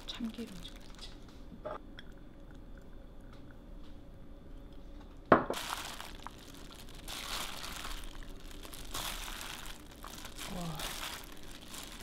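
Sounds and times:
wet squishing of mixed salad: 5.6s - 12.0s.

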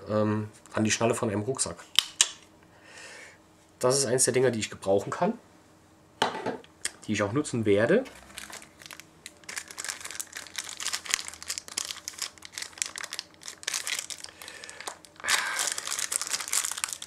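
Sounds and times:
plastic packaging crinkling: 8.2s - 17.0s.

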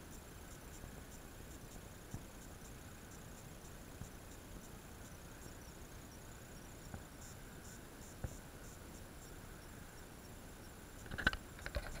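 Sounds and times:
high-pitched insect chirping: 0.0s - 12.0s
sharp clicks: 11.0s - 12.0s.

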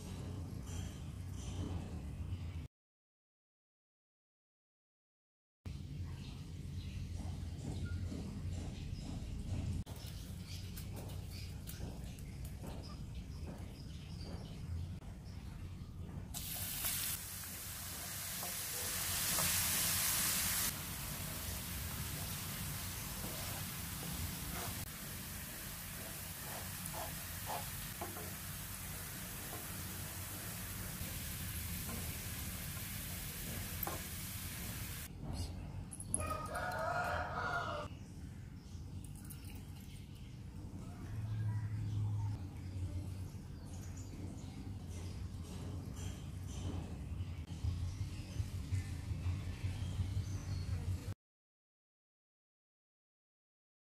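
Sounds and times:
garlic sizzling in oil: 16.4s - 35.1s
rooster crowing: 36.2s - 37.9s.

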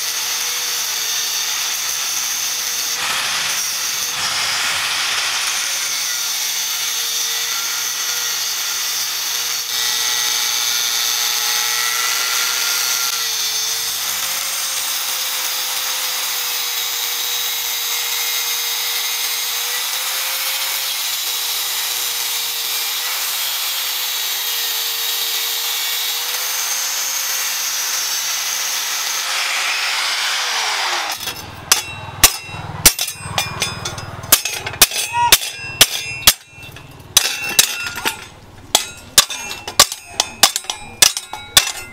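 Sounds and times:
angle grinder cutting metal: 0.0s - 41.9s
hammer strikes on metal: 31.1s - 41.9s.

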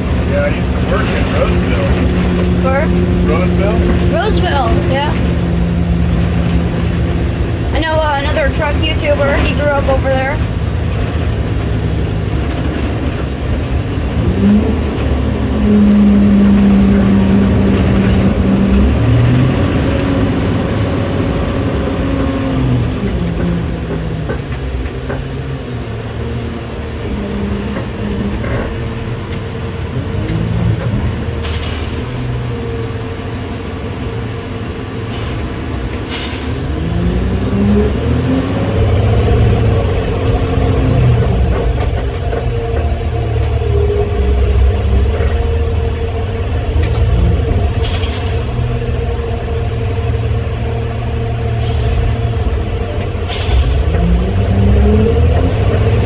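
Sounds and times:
truck engine revving: 0.0s - 56.0s
short air hisses: 36.1s - 36.6s.

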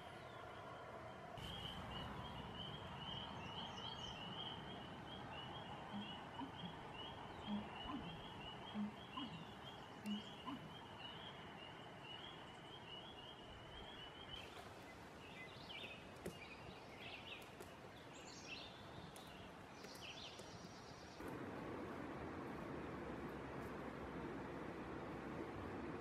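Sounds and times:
bird chirps: 1.4s - 14.4s
low frog croaks: 5.8s - 10.8s.

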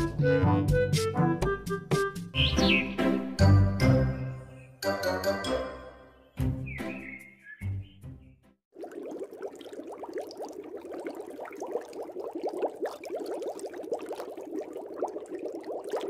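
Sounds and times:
aquarium water bubbling: 8.7s - 16.0s.

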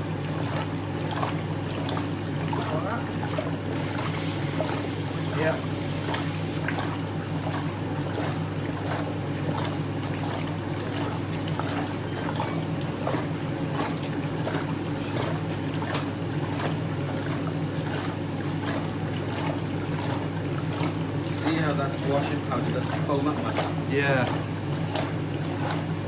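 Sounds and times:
washing machine motor humming: 0.0s - 26.0s
water churning and sloshing: 0.0s - 26.0s.

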